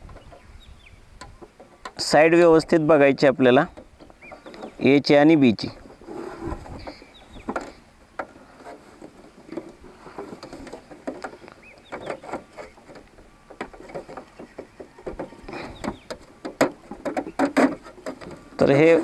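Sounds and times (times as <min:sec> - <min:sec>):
hard plastic parts clicking: 0:05.8 - 0:19.0.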